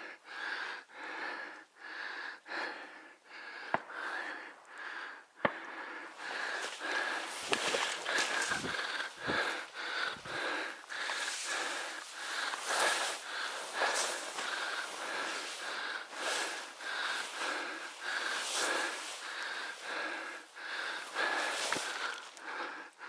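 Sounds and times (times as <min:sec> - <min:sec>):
man breathing hard: 0:00.0 - 0:23.0
grass brushing and rustling: 0:06.5 - 0:22.4.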